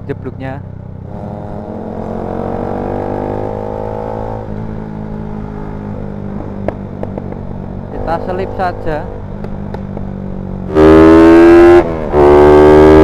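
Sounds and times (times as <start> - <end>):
motorcycle engine revving: 0.6 - 13.0
exhaust pop: 6.6 - 7.5.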